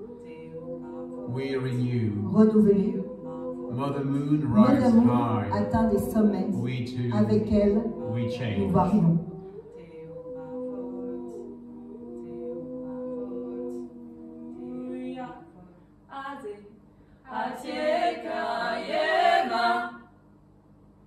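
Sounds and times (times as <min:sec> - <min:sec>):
voices singing a cappella: 0:00.0 - 0:20.1.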